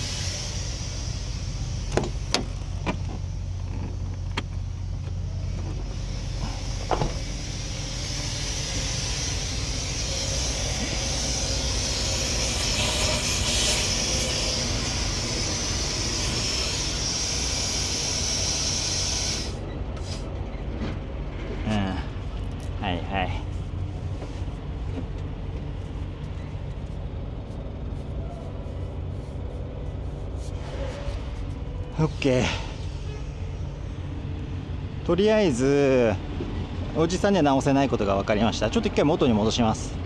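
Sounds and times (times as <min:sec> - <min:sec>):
compressed air hissing: 0:00.0 - 0:20.4, 0:27.4 - 0:35.0
low engine drone: 0:00.0 - 0:40.0.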